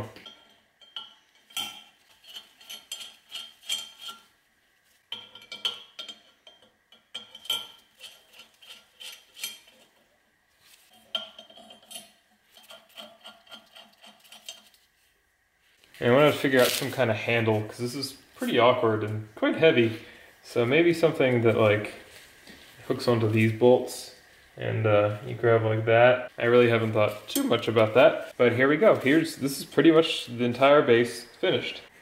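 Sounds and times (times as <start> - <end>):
bolts clinking on metal: 0.1 - 4.2.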